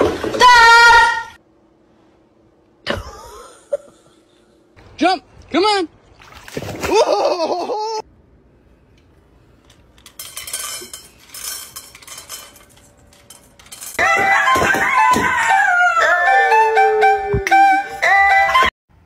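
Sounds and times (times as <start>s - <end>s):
voice: 5.0s - 5.9s
water splashing: 6.0s - 7.4s
kibble rattling into steel bowl: 10.0s - 14.0s
music with melody: 14.1s - 18.7s.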